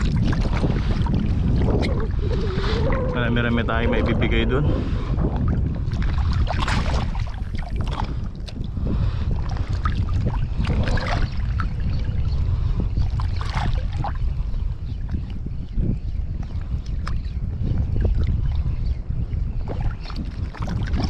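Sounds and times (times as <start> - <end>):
water sloshing: 0.0 - 14.4, 19.6 - 21.0
wind buffeting microphone: 0.0 - 21.0.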